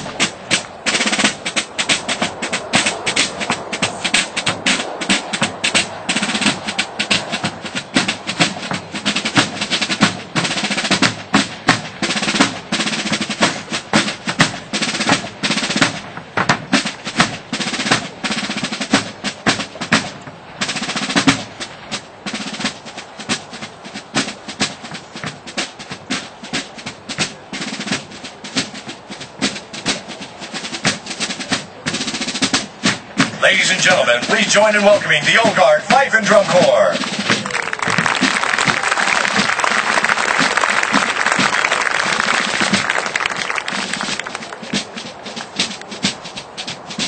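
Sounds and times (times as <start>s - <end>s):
snare drum strokes and rolls: 0.0s - 47.0s
bass drum beats: 33.1s - 39.8s.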